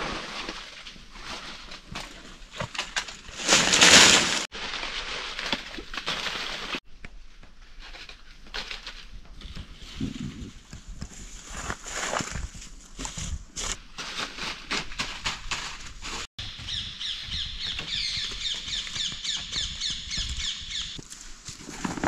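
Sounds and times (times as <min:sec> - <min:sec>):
dry leaves rustling and crackling: 0:00.0 - 0:06.8.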